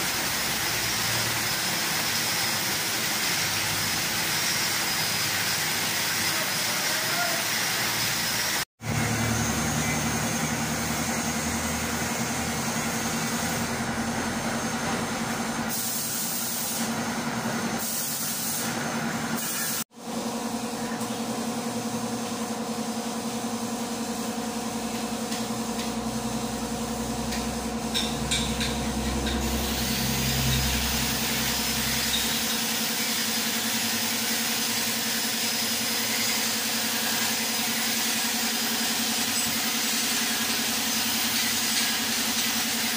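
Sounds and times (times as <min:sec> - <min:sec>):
metal lathe running: 0:25.4 - 0:42.9.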